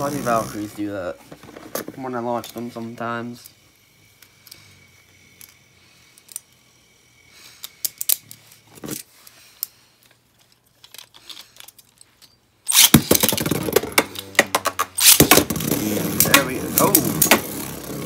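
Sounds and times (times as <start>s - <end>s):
whir of spinning tops: 0.0s - 0.9s, 2.9s - 8.7s, 12.7s - 18.0s.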